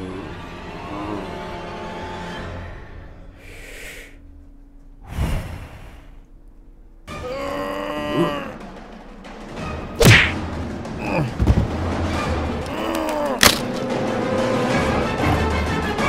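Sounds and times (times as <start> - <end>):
short breathy hiss: 3.4 - 4.2
person groaning: 7.1 - 8.8, 11.0 - 11.4, 12.7 - 13.4.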